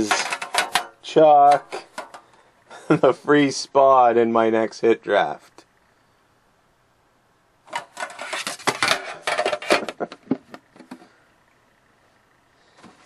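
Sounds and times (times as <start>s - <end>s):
handling clicks and rustles: 0.0s - 2.4s, 7.7s - 11.1s.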